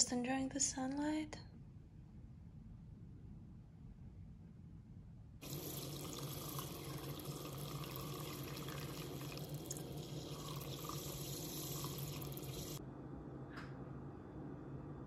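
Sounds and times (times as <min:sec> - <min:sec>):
milk frother whirring: 0:05.4 - 0:12.8.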